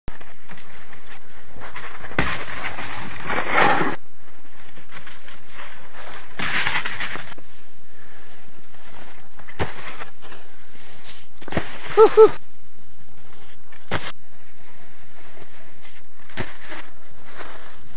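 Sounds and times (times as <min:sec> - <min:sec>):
snowboards scraping on box: 0:01.6 - 0:04.0, 0:05.4 - 0:07.4, 0:15.1 - 0:17.9.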